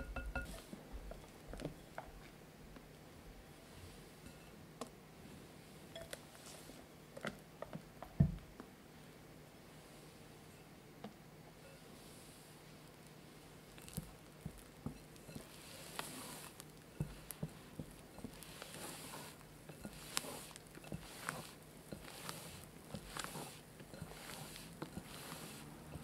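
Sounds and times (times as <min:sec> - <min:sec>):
spatula folding batter squelches: 0:11.7 - 0:26.0.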